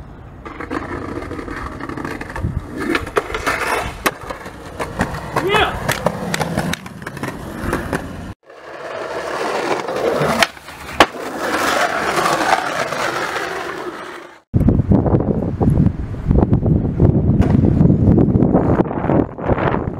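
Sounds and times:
skateboard wheels rolling on asphalt: 0.0 - 19.9
skateboard clacks: 0.4 - 8.3, 9.7 - 14.4.

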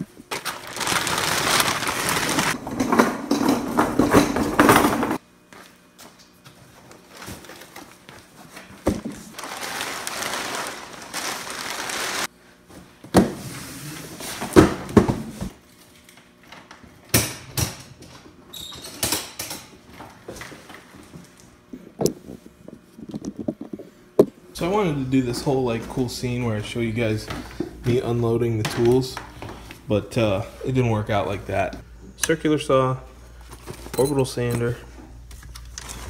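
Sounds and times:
plastic tarp rustling: 0.0 - 5.2, 9.3 - 12.3
boxes knocking and clunking: 2.6 - 5.2.

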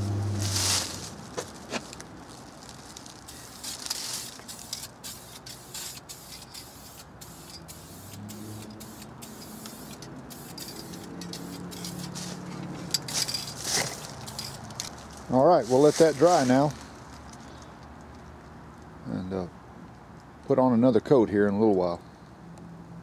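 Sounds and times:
aerosol spray can hissing: 3.3 - 12.4.

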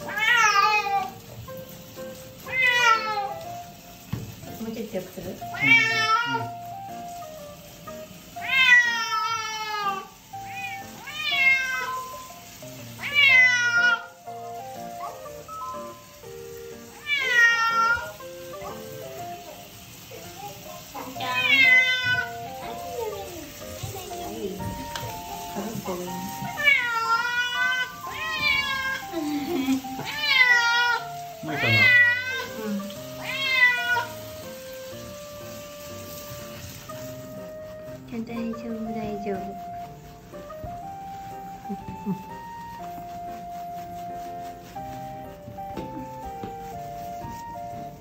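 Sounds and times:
cat yowling: 0.0 - 1.3, 2.4 - 3.4, 5.5 - 6.6, 8.4 - 12.2, 13.0 - 14.2, 16.9 - 18.8, 21.0 - 22.8, 26.4 - 34.3
shower water running: 0.0 - 48.0.

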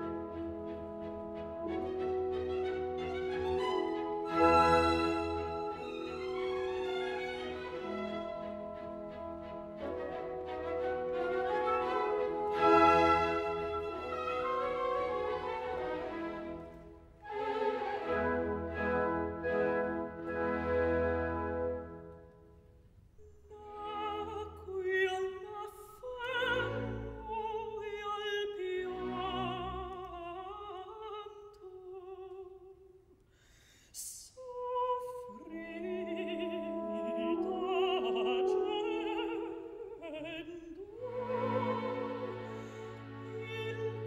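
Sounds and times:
orchestra playing: 0.0 - 22.4, 35.7 - 44.0
operatic singing: 35.0 - 44.0.

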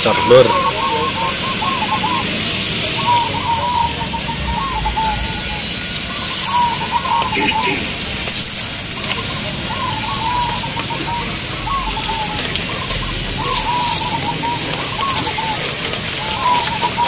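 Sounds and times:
doves cooing: 0.0 - 17.0
thin high whistle: 8.2 - 9.3.

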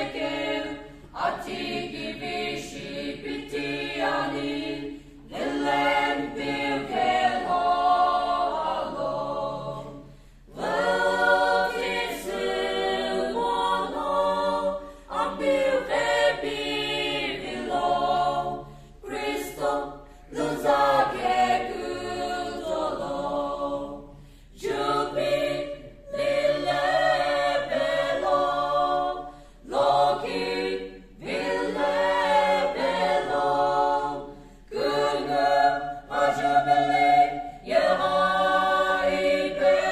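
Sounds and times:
mixed choir singing a cappella: 0.0 - 39.9
singers breathing: 10.0 - 10.5, 14.8 - 15.1, 18.6 - 19.0, 20.0 - 20.3, 24.1 - 24.6, 29.2 - 29.7, 34.3 - 34.7.

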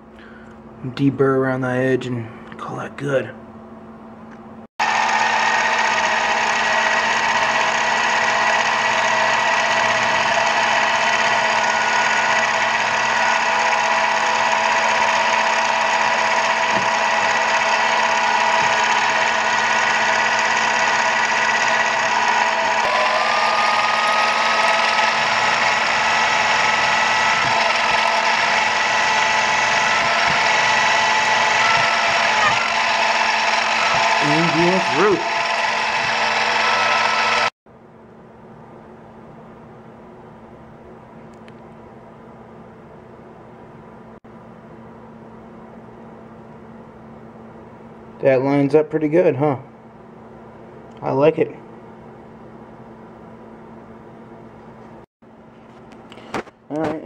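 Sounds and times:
drill boring through metal: 4.8 - 37.6
motor whine: 4.8 - 37.6.

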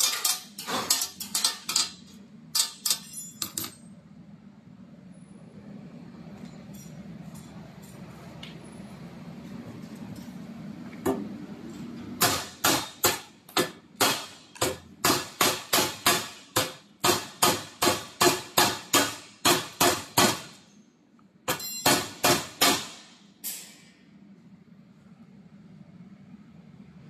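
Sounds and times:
hammer striking steel studs: 12.2 - 20.6.

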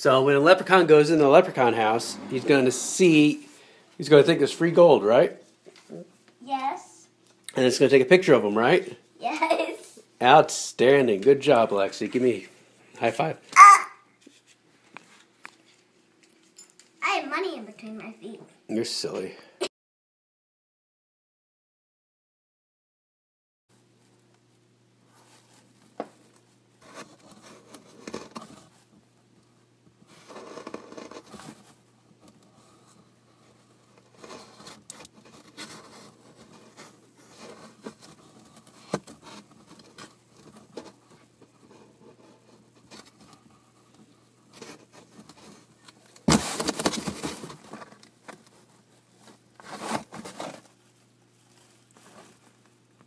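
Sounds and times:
scraping and rustling: 30.0 - 52.8.

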